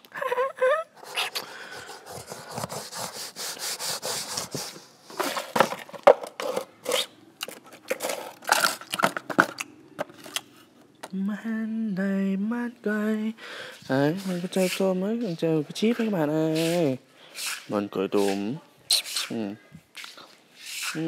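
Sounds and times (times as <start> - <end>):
baby monkey squealing: 18.9 - 19.3.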